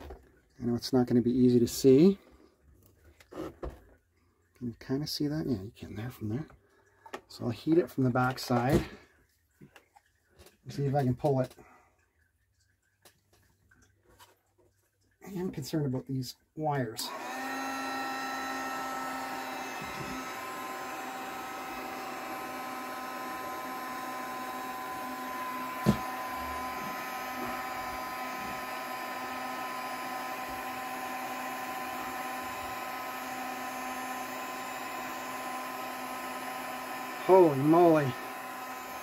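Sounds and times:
heat gun running: 16.9 - 39.0.

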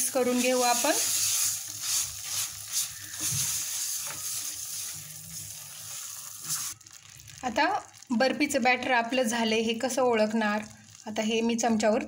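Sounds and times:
food sizzling in a pan: 0.0 - 12.0
spatula scraping a pan: 0.1 - 6.8.

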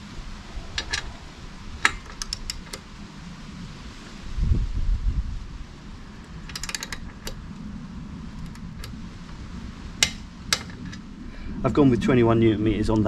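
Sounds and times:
torque wrench clicking: 0.7 - 1.1, 1.8 - 2.8, 6.2 - 7.4, 10.0 - 11.0.

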